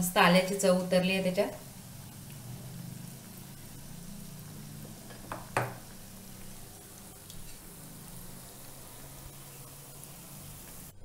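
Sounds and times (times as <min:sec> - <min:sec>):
food deep-frying in oil: 0:00.0 - 0:11.0
sharp knocks: 0:05.1 - 0:05.8.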